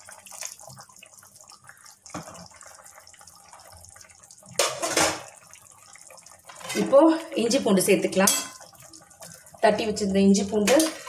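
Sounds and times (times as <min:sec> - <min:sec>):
hot water poured into pan: 0:00.0 - 0:07.0
liquid splashing and bubbling: 0:00.0 - 0:07.4, 0:08.4 - 0:10.1.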